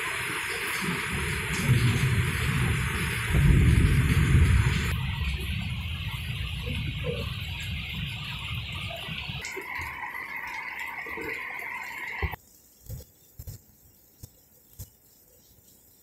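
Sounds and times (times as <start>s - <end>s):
heavy rain falling: 0.0s - 12.4s.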